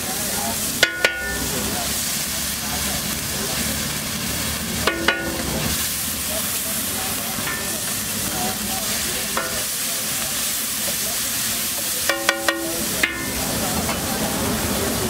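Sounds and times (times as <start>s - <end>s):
masala sizzling on a griddle: 0.0s - 15.0s
spatula clinking on griddle: 0.7s - 1.9s, 4.8s - 5.9s, 7.1s - 11.1s, 11.7s - 14.2s.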